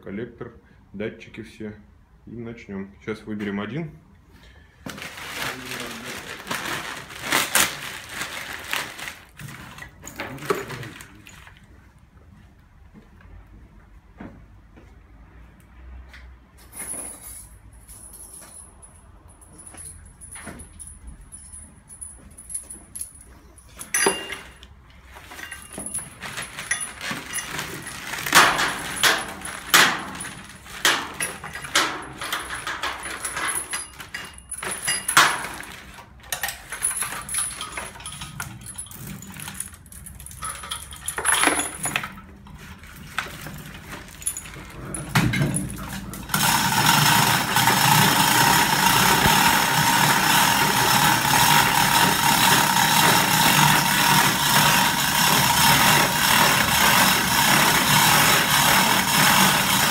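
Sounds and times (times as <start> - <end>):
metal chain clinking and rattling: 16.6 - 59.9
steady machine noise: 46.2 - 59.9.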